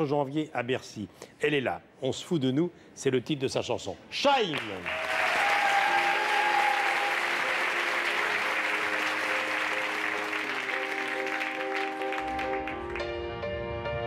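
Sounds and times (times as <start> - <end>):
audience applauding: 4.5 - 13.1
keyboard chords: 5.9 - 14.0.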